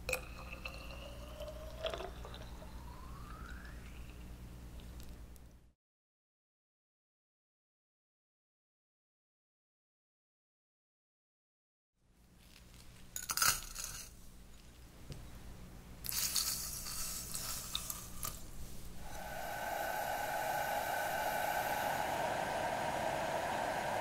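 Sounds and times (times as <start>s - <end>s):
syrup boiling with bubbling hiss: 0.0s - 4.9s
water pouring: 0.1s - 3.0s.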